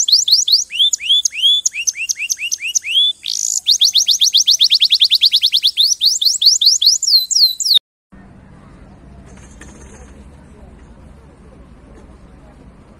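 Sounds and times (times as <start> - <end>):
canary singing: 0.0 - 7.8.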